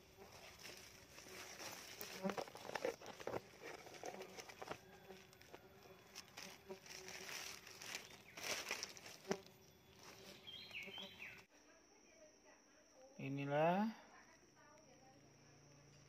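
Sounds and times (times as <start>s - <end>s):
plastic sheeting crinkling: 0.2s - 9.4s
bird chirp: 9.5s - 11.5s.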